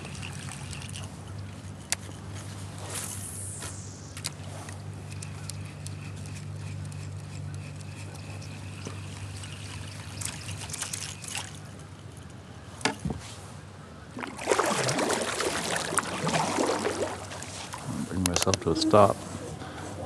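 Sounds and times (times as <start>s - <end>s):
paddle splashing water: 14.2s - 17.8s.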